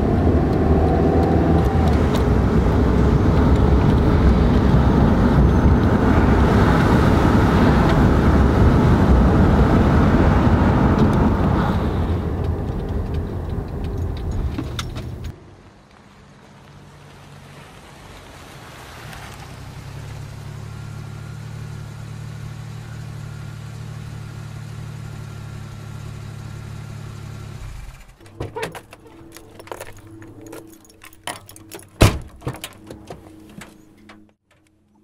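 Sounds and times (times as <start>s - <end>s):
car engine running: 0.0s - 18.0s, 19.4s - 34.4s
clicks and rattles: 28.1s - 35.0s
car door opening click: 28.2s - 34.3s.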